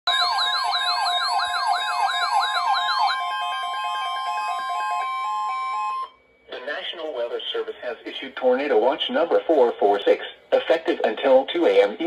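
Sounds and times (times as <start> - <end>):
siren-like warble: 0.1 - 6.5.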